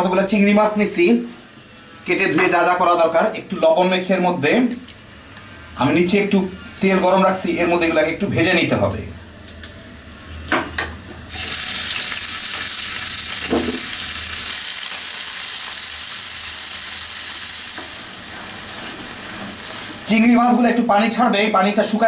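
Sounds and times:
shrimp sizzling in oil: 11.3 - 20.2.

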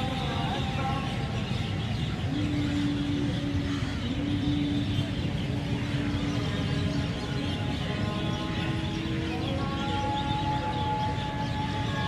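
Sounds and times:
traffic engines running: 0.0 - 12.0.

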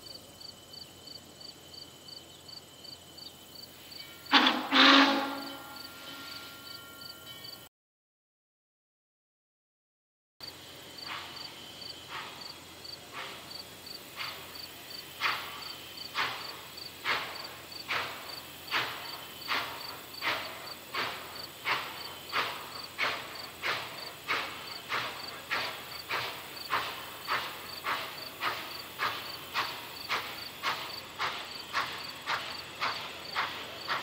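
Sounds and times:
steam locomotive chuffing: 2.4 - 7.7, 10.4 - 34.0.

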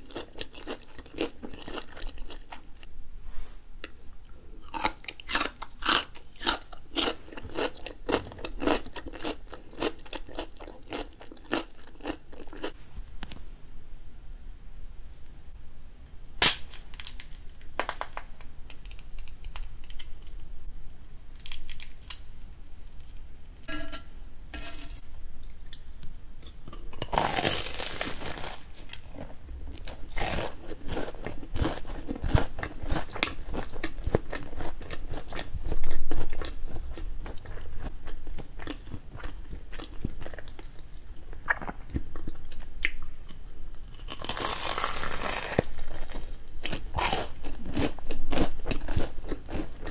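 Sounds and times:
crunchy chewing: 0.0 - 3.0, 3.8 - 12.8, 25.4 - 49.9.

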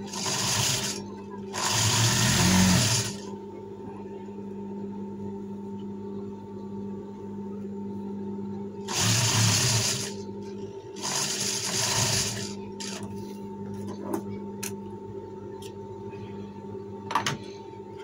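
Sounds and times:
sewing machine stitching: 0.0 - 3.3, 8.9 - 10.2, 11.0 - 13.0.

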